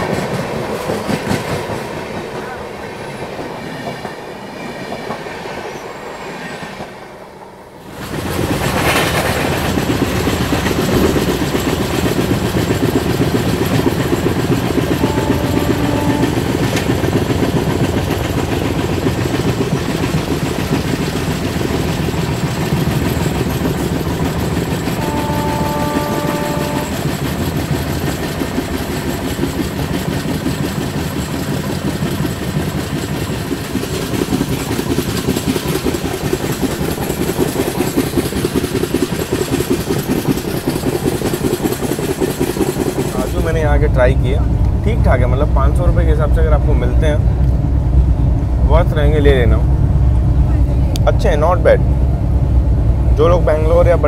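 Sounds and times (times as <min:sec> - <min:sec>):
train wheels clattering on rails: 0:00.0 - 0:07.0, 0:07.8 - 0:48.2
train horn: 0:14.8 - 0:16.9, 0:24.8 - 0:27.2.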